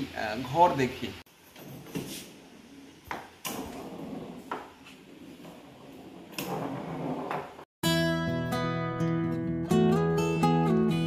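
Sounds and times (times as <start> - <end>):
foosball ball and rods knocking: 3.0 - 7.7.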